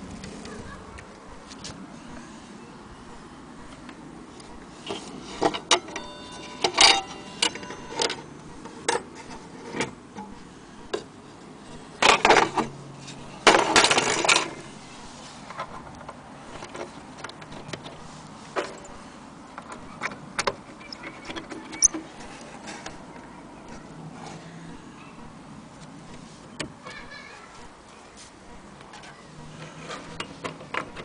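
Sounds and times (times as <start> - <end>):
clock parts knocking and clicking: 5.4 - 11.1, 13.4 - 14.6.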